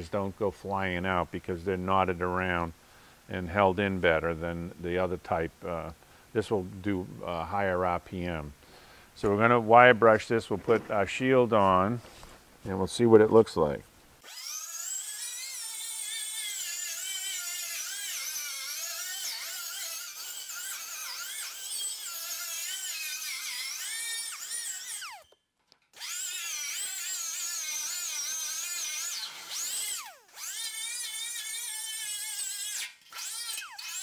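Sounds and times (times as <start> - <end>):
die grinder wire wheel on steel: 14.2 - 34.0.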